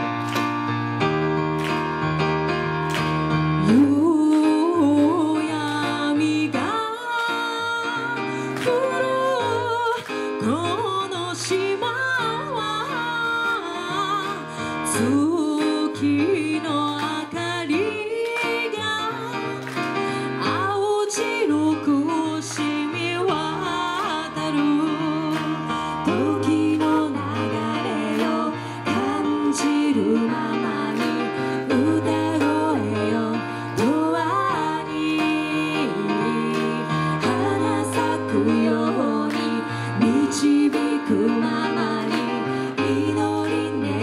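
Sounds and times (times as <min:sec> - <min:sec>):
woman singing: 0:03.6 - 0:44.0.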